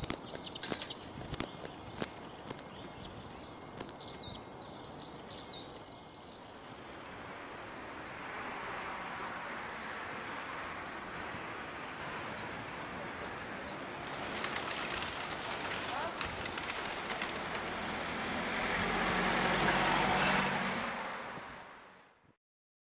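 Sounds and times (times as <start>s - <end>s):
sparrows chirping: 0.0s - 17.4s
city street noise: 0.0s - 22.2s.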